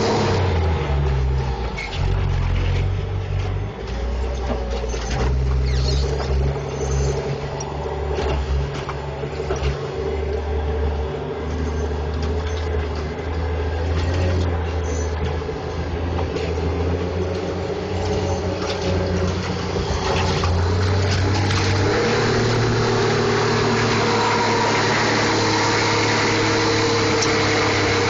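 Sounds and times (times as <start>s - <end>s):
clanks and rattles: 0.0s - 10.4s
diesel engine running under load: 0.0s - 28.0s.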